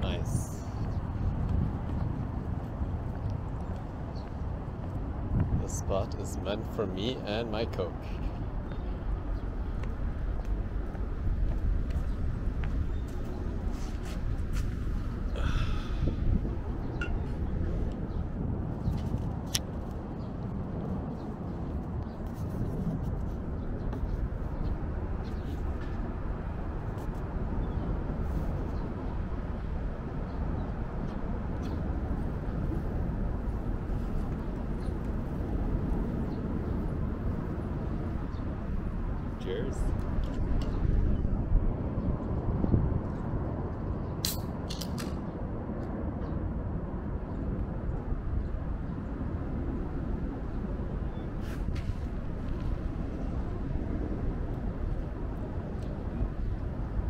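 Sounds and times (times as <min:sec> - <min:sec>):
steady low rumble: 0:00.0 - 0:57.0.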